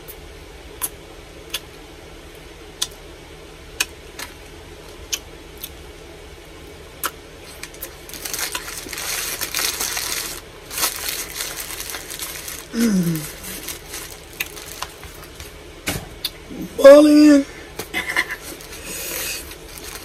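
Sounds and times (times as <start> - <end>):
low hum: 0.0 - 20.0
mouth clicks while eating: 0.8 - 1.7, 2.8 - 3.0, 5.1 - 5.8
crackling and crinkling: 7.0 - 15.6, 17.8 - 20.0.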